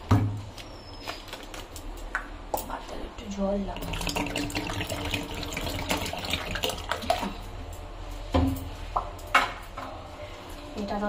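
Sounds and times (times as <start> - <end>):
boiling rice bubbling: 3.7 - 7.5
water pouring into pot: 3.8 - 7.3.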